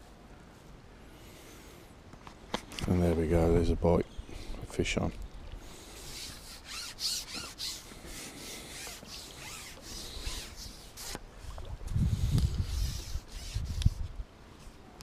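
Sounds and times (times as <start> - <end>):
scratchy rubbing of fishing pole: 6.0 - 14.1.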